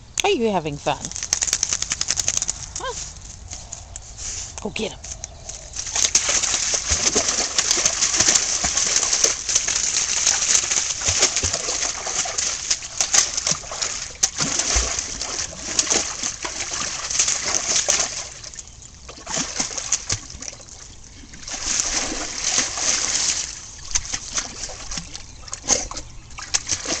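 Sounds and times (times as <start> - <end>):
dog splashing in water: 5.7 - 27.0.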